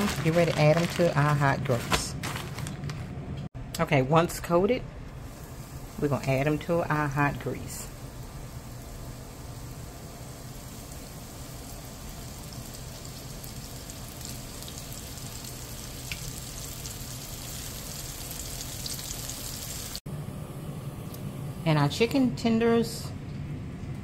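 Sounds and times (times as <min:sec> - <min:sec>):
chicken frying in hot oil: 0:05.3 - 0:20.0.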